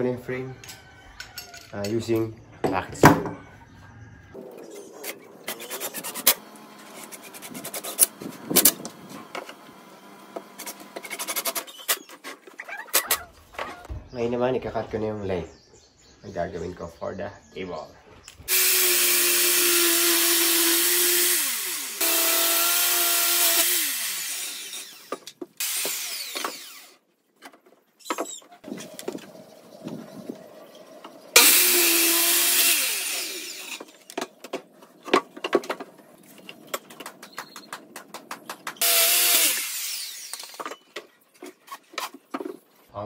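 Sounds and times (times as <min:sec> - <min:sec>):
circular saw cutting wood: 0:05.0 - 0:11.9, 0:18.5 - 0:27.0, 0:31.3 - 0:34.2, 0:38.7 - 0:40.7
boards knocking and clattering: 0:34.0 - 0:38.8.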